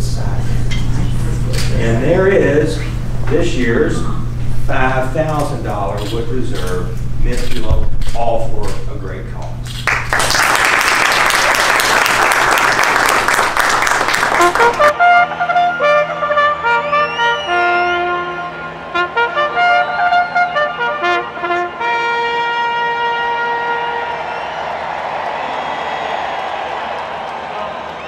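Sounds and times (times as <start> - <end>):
applause: 9.8 - 15.0, 23.9 - 28.0
brass fanfare with trumpets: 14.1 - 25.0.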